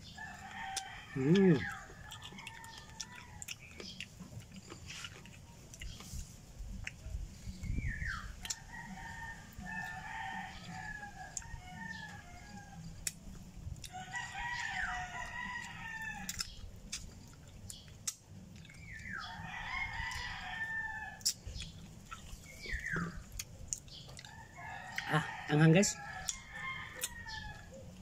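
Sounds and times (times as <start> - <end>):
rooster crowing: 0.2 - 3.5, 8.6 - 12.8, 13.9 - 16.4, 19.3 - 21.2, 24.3 - 27.8
crunchy eating clicks: 0.5 - 6.1, 16.2 - 19.1.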